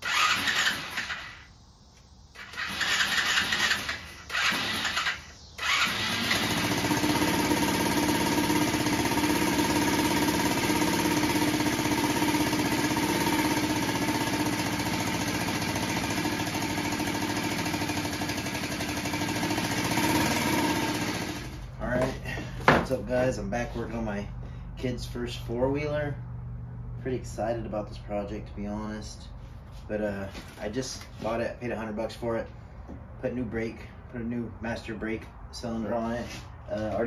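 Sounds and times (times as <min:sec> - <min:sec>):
small engine starting and idling: 0:00.0 - 0:01.6, 0:02.3 - 0:22.4.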